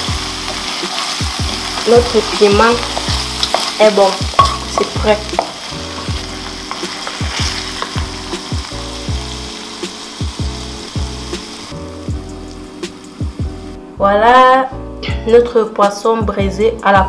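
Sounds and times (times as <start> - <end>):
sauce sizzling in a frying pan: 0.0 - 13.8
wooden spoon scraping a pan: 0.5 - 8.2.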